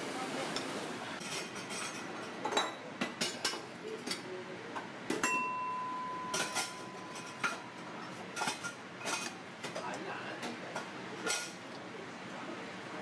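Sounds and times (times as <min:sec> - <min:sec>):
metal pots and utensils clinking: 0:00.6 - 0:04.3, 0:05.1 - 0:11.6.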